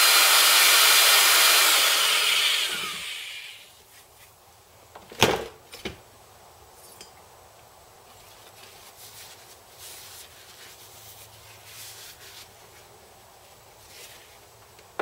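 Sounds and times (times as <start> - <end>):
cloth rag rubbing engine part: 8.2 - 14.6.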